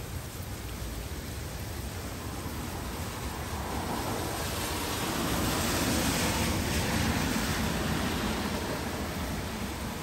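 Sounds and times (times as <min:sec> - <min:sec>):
steady rain: 0:00.0 - 0:10.0
car tyres hissing on wet road: 0:02.1 - 0:10.0.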